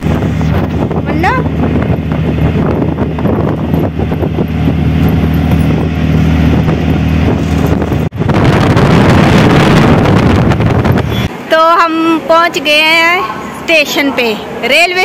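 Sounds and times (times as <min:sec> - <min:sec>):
auto-rickshaw engine running: 0:00.0 - 0:11.3
wind on microphone: 0:00.0 - 0:11.4
road noise: 0:00.0 - 0:15.0.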